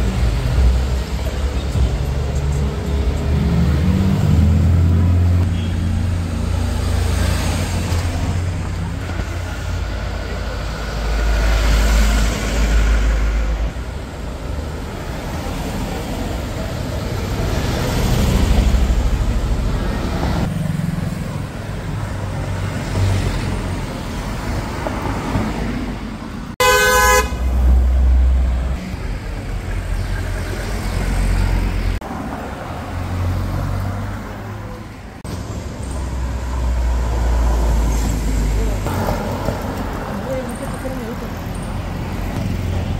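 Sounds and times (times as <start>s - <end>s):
cars driving past: 0.0s - 42.9s
car horn blast: 5.4s - 6.0s, 26.6s - 27.5s.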